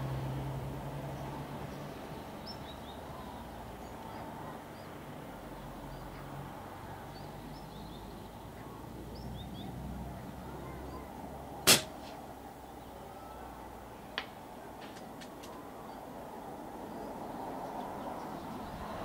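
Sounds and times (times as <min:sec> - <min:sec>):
air rifle shot: 0:11.7 - 0:12.2.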